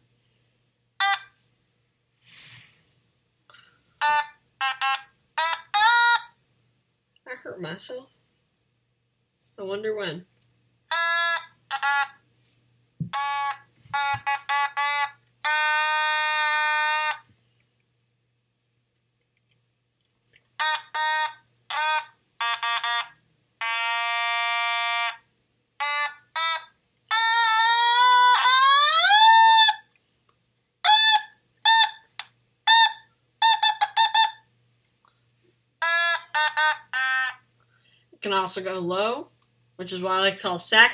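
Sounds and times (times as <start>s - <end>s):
electronic toy synthesizer notes: 1.0s - 1.3s, 4.0s - 6.3s, 10.9s - 12.2s, 13.0s - 17.2s, 20.6s - 25.2s, 25.8s - 29.8s, 30.9s - 34.4s, 35.8s - 37.4s.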